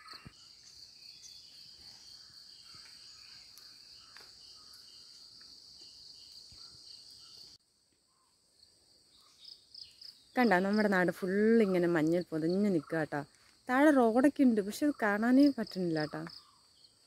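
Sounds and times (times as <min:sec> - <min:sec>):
insects trilling: 0:00.0 - 0:17.0.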